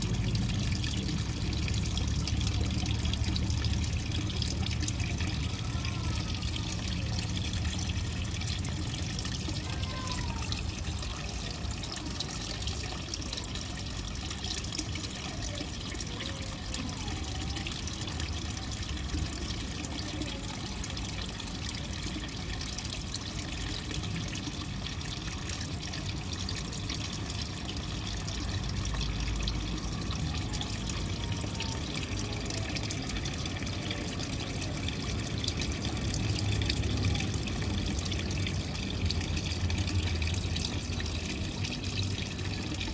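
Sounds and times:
water trickling into a pond: 0.0 - 42.9.

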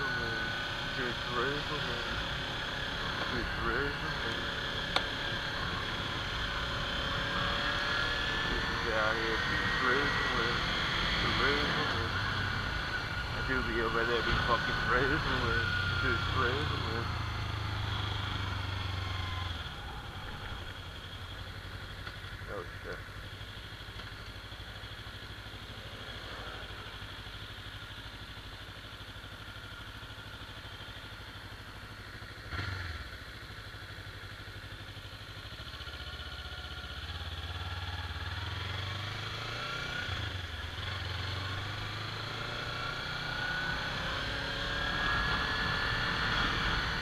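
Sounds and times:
rising engine whine: 0.0 - 23.3, 35.8 - 47.0
motorcycle engine running: 0.0 - 47.0.

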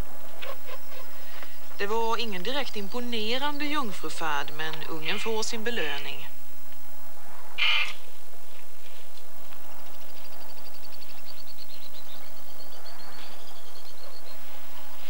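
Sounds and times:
raven call: 7.4 - 8.2.

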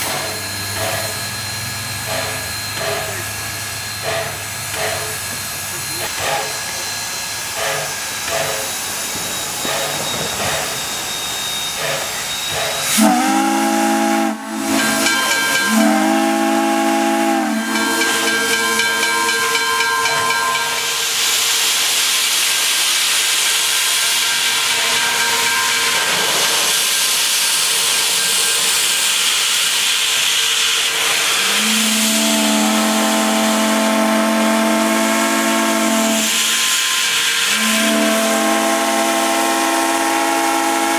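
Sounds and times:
steam venting hiss: 0.0 - 19.6, 20.3 - 40.9
steam whistle blasts: 10.1 - 21.8, 30.8 - 40.9.

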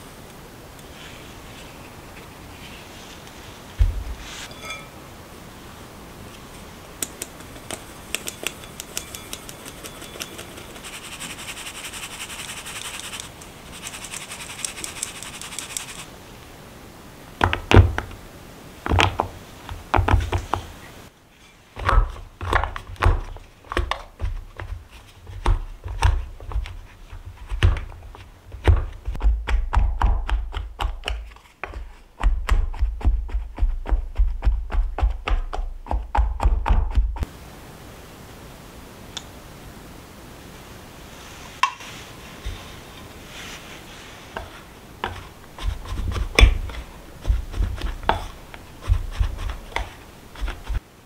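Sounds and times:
flour sifting through metal sieve: 2.5 - 5.0, 7.9 - 16.1, 41.1 - 50.8
sieve tapping ticks: 7.0 - 10.8, 14.1 - 16.0.

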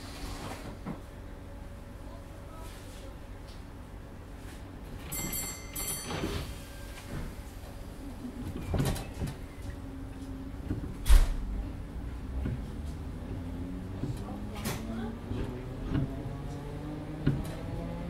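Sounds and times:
train doors sliding shut: 0.0 - 1.0, 5.0 - 7.6, 8.2 - 9.8, 10.6 - 11.7, 14.0 - 17.9.

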